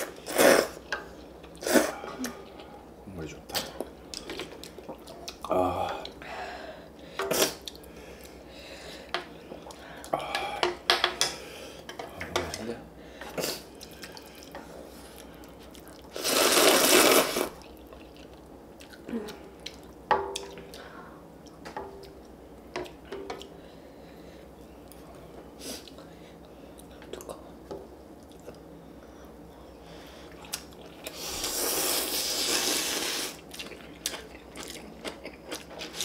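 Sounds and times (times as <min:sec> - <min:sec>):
slurping noodles: 0:16.1 - 0:17.7, 0:31.1 - 0:33.4.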